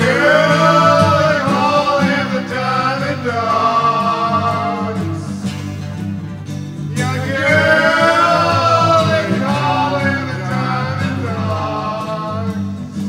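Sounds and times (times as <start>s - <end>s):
sliding melody line: 0.0s - 5.4s, 7.0s - 12.5s
rock band playing: 0.0s - 13.0s.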